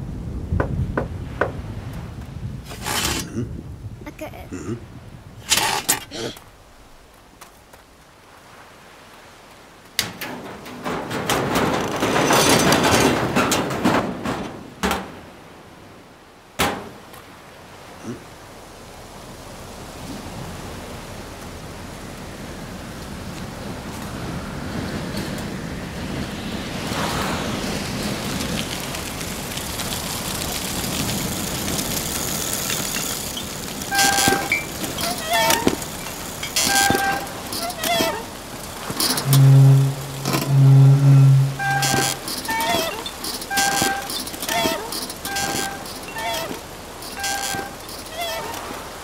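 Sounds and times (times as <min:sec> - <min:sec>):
metal and wood rattling: 0:02.7 - 0:03.4, 0:05.4 - 0:06.4, 0:10.0 - 0:15.3, 0:29.8 - 0:48.9
horn toot: 0:38.9 - 0:48.5.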